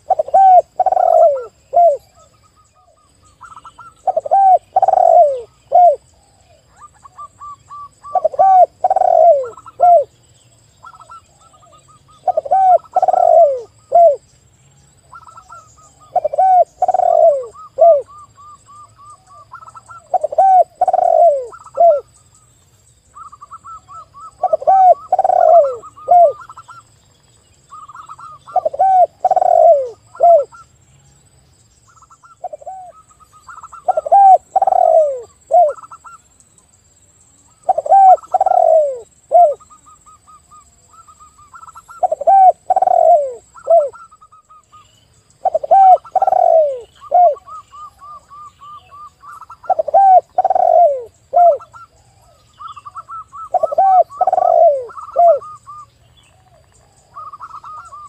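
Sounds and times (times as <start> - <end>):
doves cooing: 0.0 - 10.2, 10.8 - 14.3, 15.1 - 22.1, 23.2 - 26.9, 27.7 - 30.6, 31.9 - 36.2, 37.5 - 44.8, 45.4 - 58.0.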